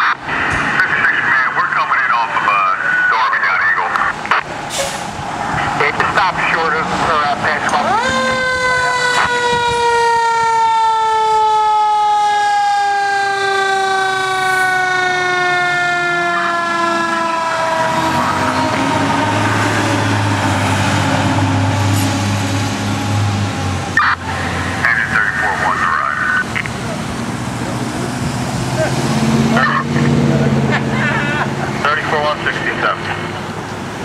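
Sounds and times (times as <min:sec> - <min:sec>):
truck engine rumbling: 0:00.0 - 0:34.0
mechanical siren falling in pitch: 0:07.8 - 0:20.5.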